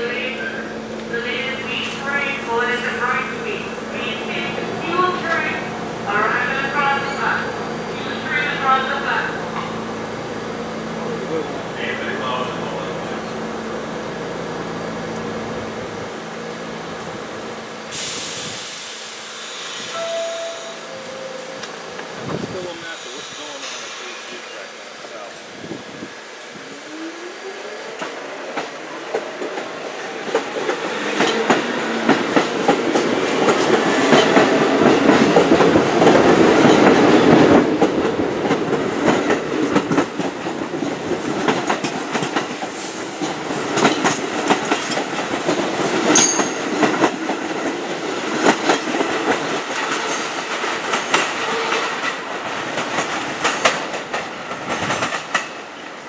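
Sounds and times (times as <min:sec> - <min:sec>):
subway motors whining: 0:00.0 - 0:56.0
wheels clacking over rail joints: 0:28.0 - 0:56.0.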